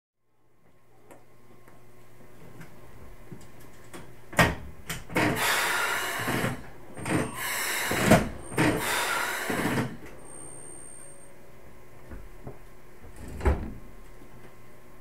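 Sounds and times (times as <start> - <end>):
hissing air bursts: 5.2 - 10.0.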